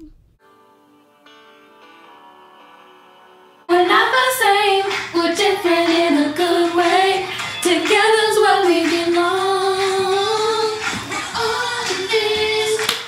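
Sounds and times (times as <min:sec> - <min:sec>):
woman singing alone: 0:03.7 - 0:13.0.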